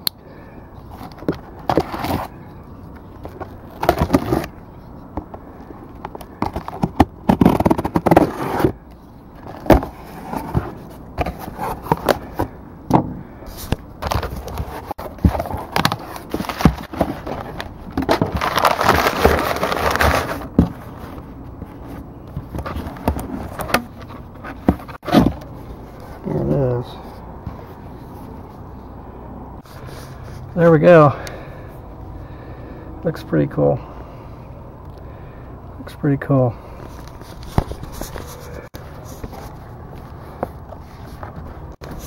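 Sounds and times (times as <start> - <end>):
cardboard flaps scraping: 6.2 - 8.8, 9.4 - 12.6, 13.2 - 26.6, 36.9 - 42.0
packing paper crinkling: 13.5 - 25.1.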